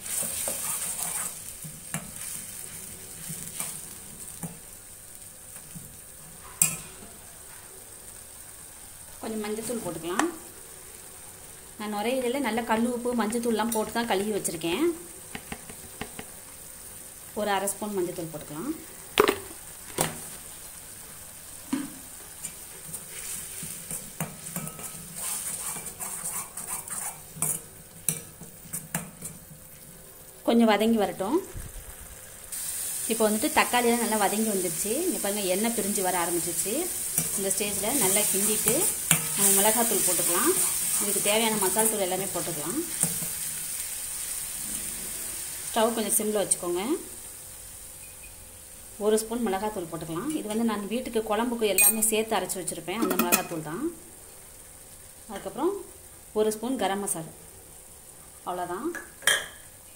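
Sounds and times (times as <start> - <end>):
skimmer scraping pan: 0.0 - 2.0, 22.4 - 29.5
masala sizzling in oil: 0.0 - 59.9
metal clack on pan: 6.6 - 7.0, 53.0 - 53.6.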